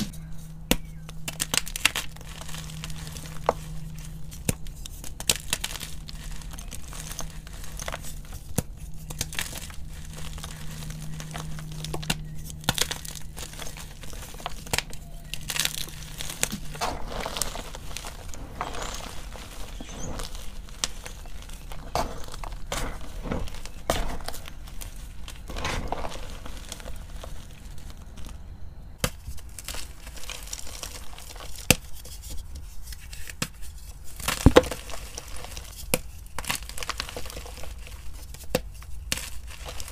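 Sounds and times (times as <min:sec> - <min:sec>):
chalk crunching by hand: 0:00.0 - 0:28.4.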